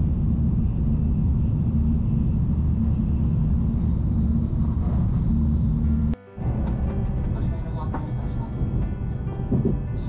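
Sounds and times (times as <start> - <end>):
train rumble inside cabin: 0.0 - 10.0.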